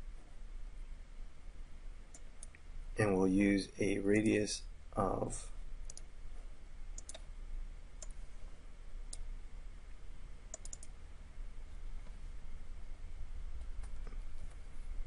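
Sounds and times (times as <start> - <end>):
low steady hum: 0.0 - 15.0
mouse buttons clicking: 7.0 - 7.2, 10.5 - 10.9.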